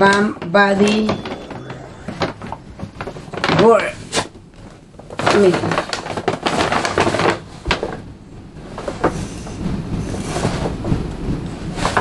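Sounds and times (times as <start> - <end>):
paper bag rustling and crinkling: 5.1 - 8.0.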